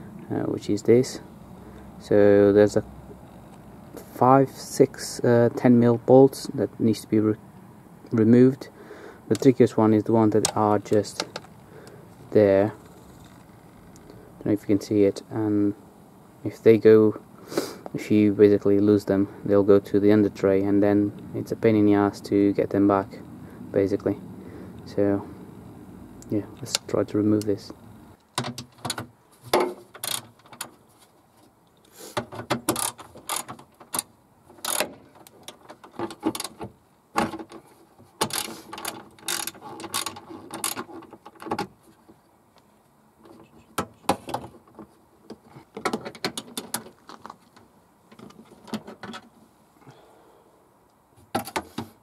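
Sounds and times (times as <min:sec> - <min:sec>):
socket ratchet clicking: 0:30.0 - 0:30.6, 0:32.7 - 0:35.6, 0:38.2 - 0:40.8.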